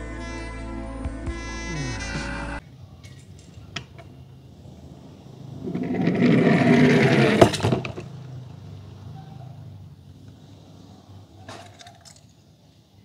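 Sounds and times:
toy car rolling down plastic slide: 5.6s - 8.2s, 11.5s - 12.4s.

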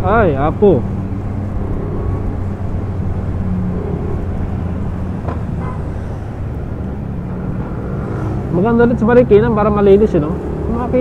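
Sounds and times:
wind and road noise: 0.0s - 11.0s
scooter engine humming: 0.8s - 8.5s.

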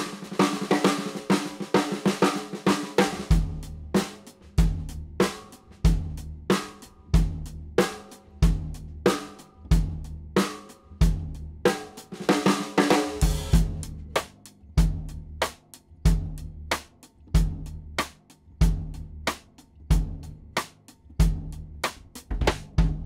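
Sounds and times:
snare drum struck with sticks: 11.7s - 23.0s
bass drum pulse: 13.2s - 23.0s.

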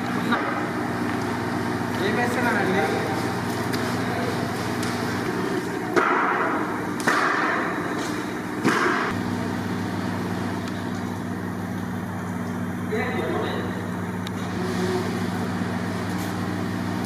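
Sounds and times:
steady low hum: 0.0s - 17.0s
sharp knocks: 5.9s - 7.8s, 8.6s - 9.1s.

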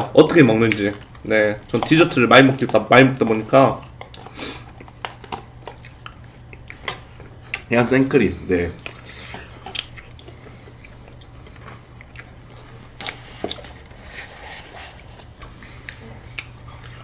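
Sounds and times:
low steady hum: 0.0s - 17.0s
mouth smacks and chewing: 9.6s - 12.4s, 14.9s - 17.0s.

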